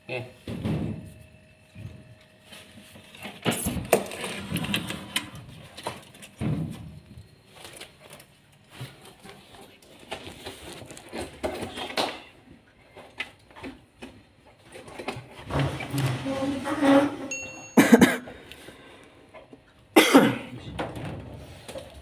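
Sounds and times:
knocks scrapes and clatter: 3.3 - 6.1, 14.6 - 17.3.

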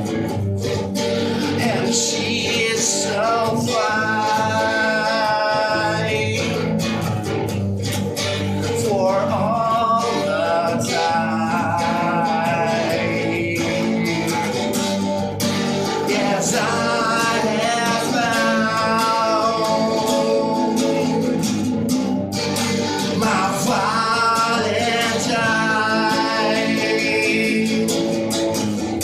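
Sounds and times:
guitar playing: 0.0 - 29.0
man singing long notes: 1.3 - 6.8, 8.6 - 14.8, 15.9 - 21.6, 23.0 - 28.3.

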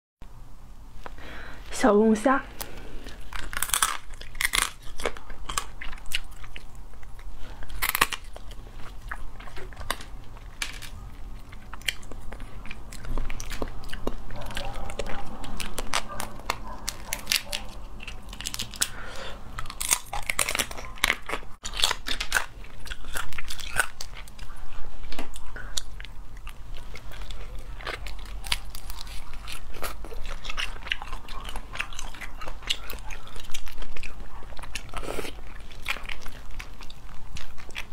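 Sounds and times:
biting and chewing: 2.5 - 37.9
crayfish shells cracking: 2.6 - 8.6, 9.2 - 24.4, 27.0 - 34.2.

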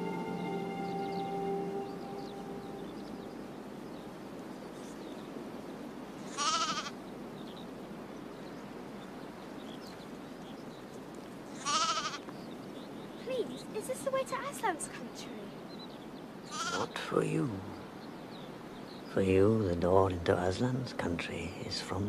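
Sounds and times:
steady low hiss: 0.0 - 22.0
lamb bleating: 6.3 - 7.0, 11.6 - 12.2, 16.5 - 16.9.

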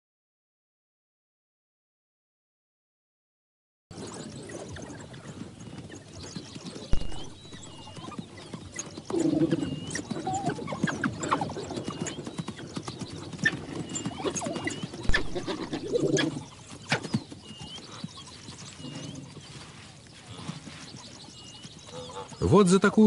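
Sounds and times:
hooves scuffling: 3.9 - 22.9
loud thumps: 6.9 - 7.9, 15.1 - 16.0
wildebeest bellowing: 15.1 - 16.4.

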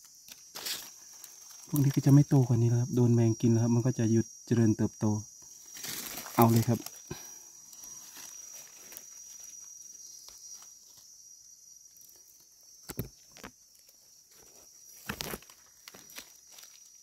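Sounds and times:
forest insects droning: 0.0 - 17.0
dry leaves rustling under a hand: 0.4 - 2.3, 5.6 - 11.2, 14.3 - 17.0.

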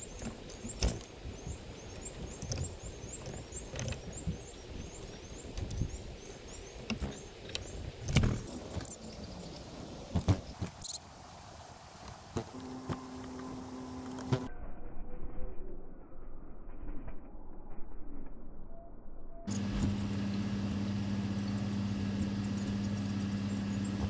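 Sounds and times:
birds pecking on wooden feeder: 0.0 - 9.0
songbirds chirping: 0.0 - 14.5, 19.5 - 24.0.

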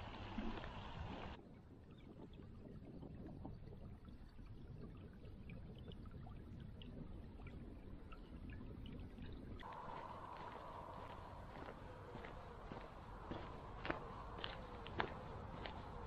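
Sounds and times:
low rumble: 9.6 - 16.0.

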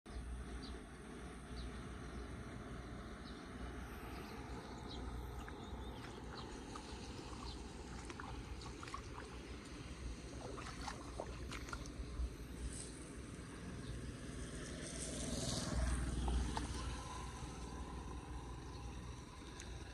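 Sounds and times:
faint ticks and clicks: 18.6 - 19.9.

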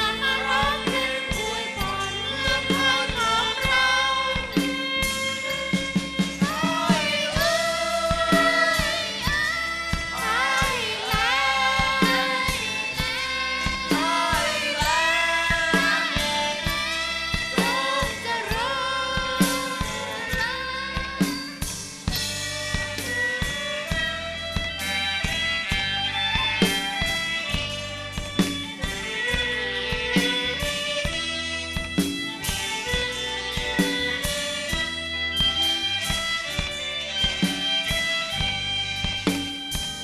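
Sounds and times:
women singing in unison: 0.0 - 21.6
live band playing: 0.0 - 40.0.

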